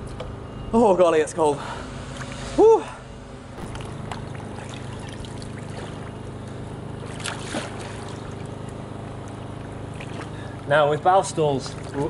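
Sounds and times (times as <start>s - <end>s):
steady low hum: 0.0s - 12.0s
water splashing and trickling: 3.6s - 10.6s, 11.5s - 12.0s.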